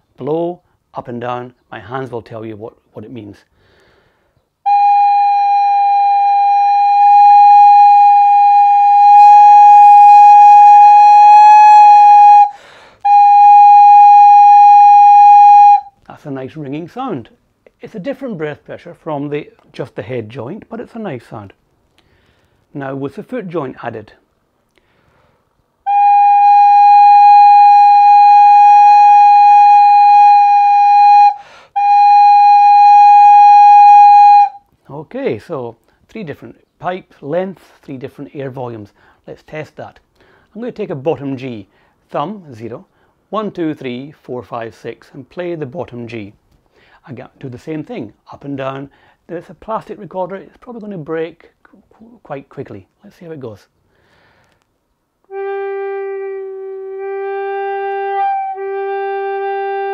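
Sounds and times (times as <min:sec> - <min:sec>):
player taking breath: 0:03.5 - 0:04.5, 0:12.5 - 0:13.1, 0:22.0 - 0:22.7, 0:24.8 - 0:25.6, 0:31.4 - 0:31.8, 0:39.0 - 0:39.2, 0:40.2 - 0:40.5, 0:41.7 - 0:42.0, 0:46.6 - 0:47.0, 0:48.9 - 0:49.2, 0:53.9 - 0:54.6
recorder long note: 0:04.7 - 0:15.9, 0:25.9 - 0:34.6, 0:55.3 - 0:59.9.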